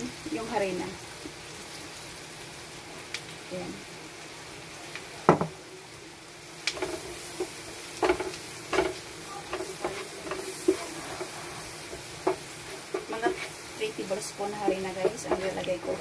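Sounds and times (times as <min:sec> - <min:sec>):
butter sizzling in frying pan: 0:00.0 - 0:16.0
spatula scraping and tapping pan: 0:06.7 - 0:16.0.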